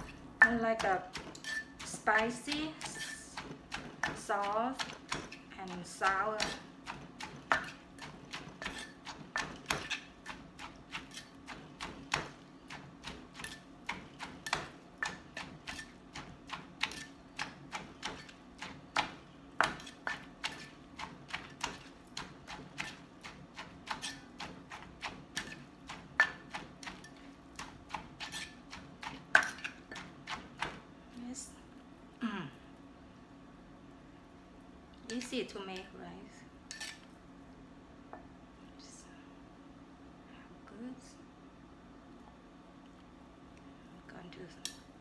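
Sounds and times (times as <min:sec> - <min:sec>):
pestle pounding in a mortar: 0:00.0 - 0:30.8.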